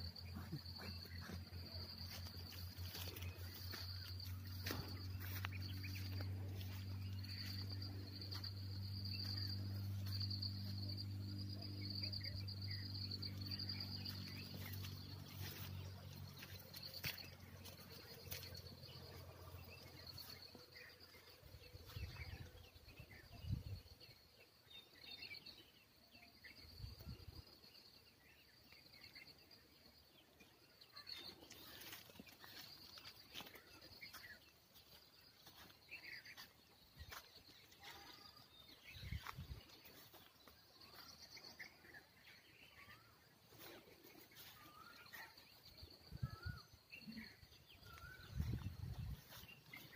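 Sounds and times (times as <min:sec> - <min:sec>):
insects trilling: 0:00.0 - 0:24.2.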